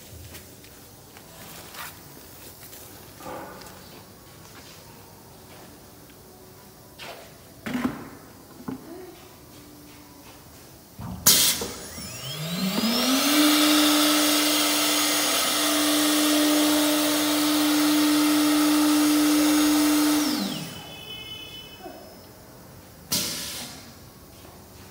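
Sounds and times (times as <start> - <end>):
cnc router spindle whine: 11.4 - 22.4
short sharp hiss burst: 23.1 - 24.0
loud rushing hiss: 23.1 - 24.1.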